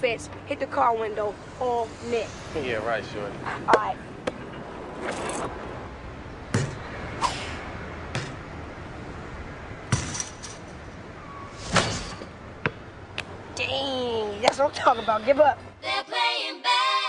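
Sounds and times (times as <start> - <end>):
basketball bouncing off hard surfaces: 6.5 - 6.8, 8.1 - 8.4, 9.9 - 10.2.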